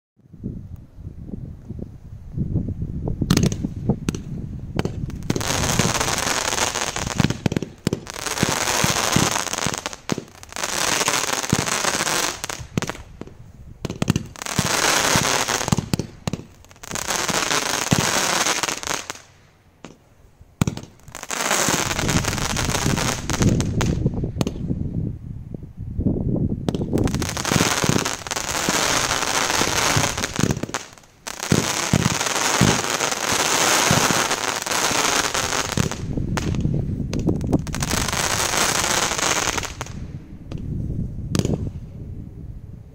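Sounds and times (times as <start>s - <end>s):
firework cake firing shots: 31.5s - 34.2s.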